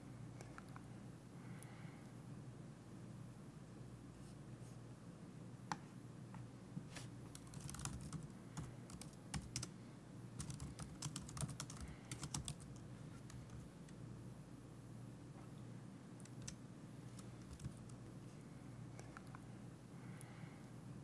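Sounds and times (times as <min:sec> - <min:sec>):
faint keyboard typing: 0:07.3 - 0:09.8, 0:10.4 - 0:14.0, 0:16.2 - 0:19.5.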